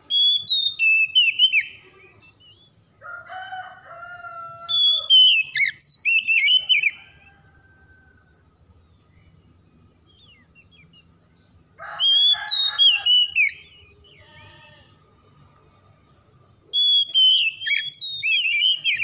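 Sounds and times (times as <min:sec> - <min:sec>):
bird singing fast whistled song: 0:00.0 - 0:02.8, 0:04.7 - 0:07.2, 0:09.0 - 0:11.2, 0:12.0 - 0:14.0, 0:16.7 - 0:19.0.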